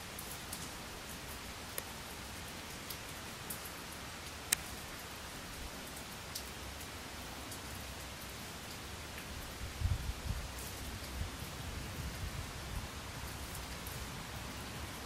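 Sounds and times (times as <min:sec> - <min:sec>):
faint ticks: 0:04.5 - 0:04.7.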